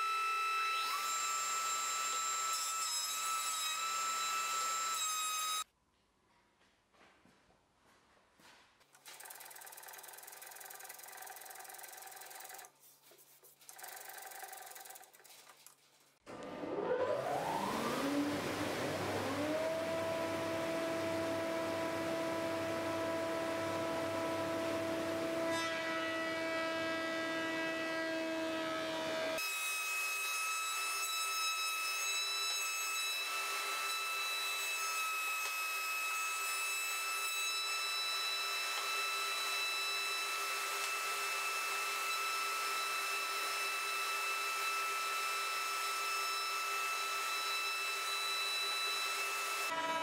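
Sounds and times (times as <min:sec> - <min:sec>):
planer machine whine: 0:16.3 - 0:28.0, 0:41.6 - 0:50.0.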